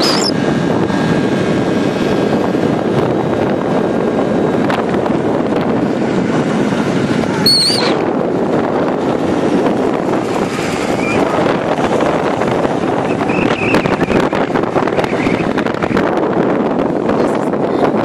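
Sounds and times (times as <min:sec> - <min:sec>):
high wavering squeal: 0:00.0 - 0:00.4, 0:07.4 - 0:08.1
motor scooter running: 0:00.0 - 0:18.0
wind buffeting microphone: 0:00.0 - 0:18.0.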